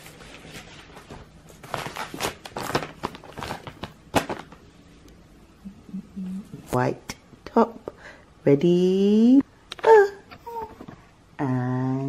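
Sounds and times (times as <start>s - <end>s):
plastic packet crinkling: 1.6s - 4.6s.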